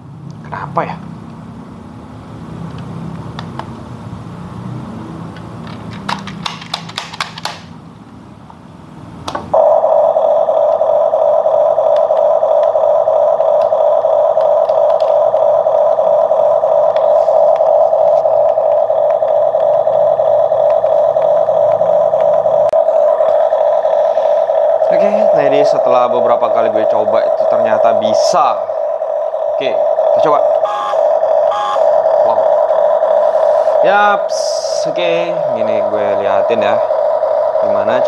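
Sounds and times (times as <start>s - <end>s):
toy engine sound effect drone: 9.6s - 38.0s.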